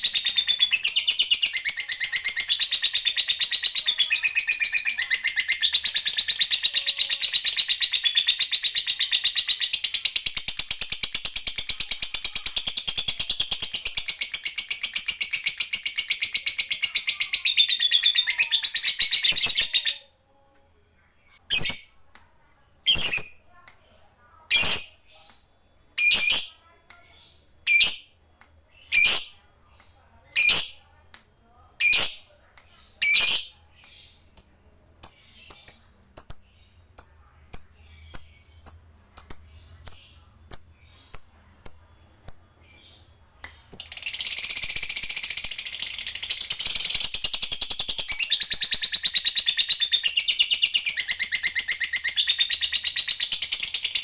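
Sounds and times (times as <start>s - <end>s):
lovebird chirping and trilling: 0.0s - 20.1s, 21.2s - 22.1s, 22.8s - 23.6s, 24.4s - 31.1s, 31.7s - 54.0s.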